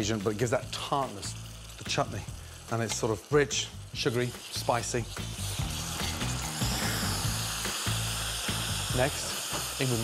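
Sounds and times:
background music: 0.0 - 10.0
mixture sizzling in a pan: 0.0 - 10.0.

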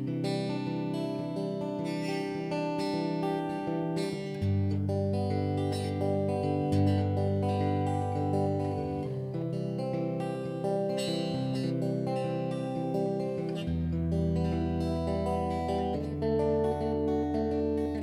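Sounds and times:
electric guitar chords: 0.0 - 18.0.

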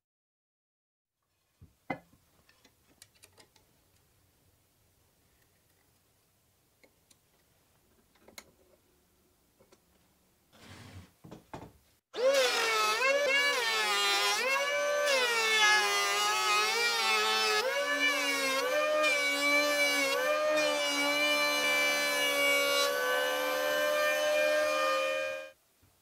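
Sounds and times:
planer cutting wood: 12.1 - 25.6
electric planer motor whine: 12.2 - 25.6.

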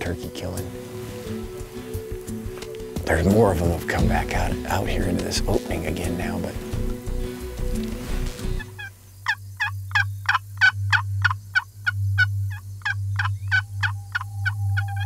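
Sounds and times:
wild turkey yelps: 8.6 - 15.0.

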